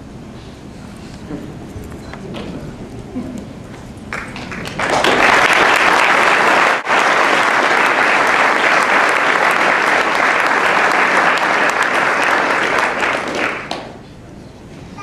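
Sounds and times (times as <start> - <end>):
audience applauding: 4.1 - 14.0.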